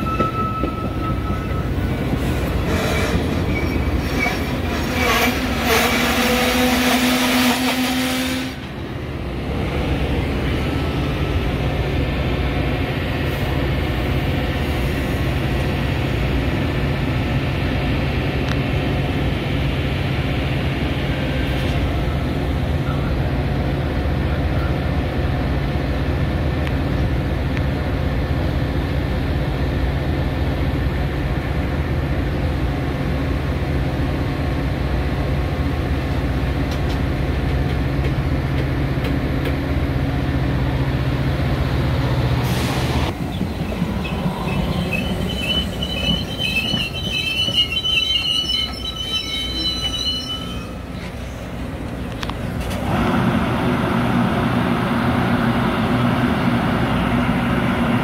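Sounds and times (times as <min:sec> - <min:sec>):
train brakes squealing: 0:00.0 - 0:08.6, 0:42.4 - 0:51.5
train rumbling: 0:00.0 - 0:58.0.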